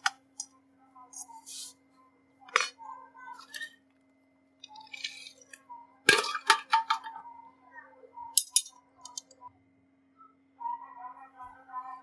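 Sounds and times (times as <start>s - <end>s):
metal objects clinking together: 4.7s - 7.1s, 8.4s - 9.3s.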